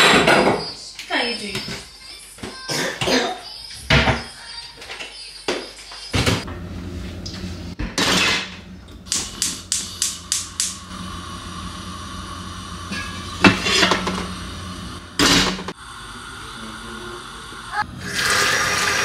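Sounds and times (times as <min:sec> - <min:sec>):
gas flame hissing: 0:06.3 - 0:19.0
spark igniter clicking: 0:09.1 - 0:10.9
pot scraping on hob grate: 0:12.8 - 0:15.6.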